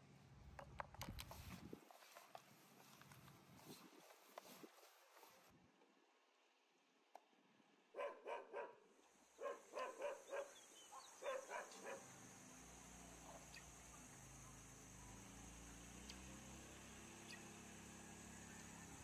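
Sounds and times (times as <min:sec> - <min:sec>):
dog barking: 0:07.9 - 0:12.2.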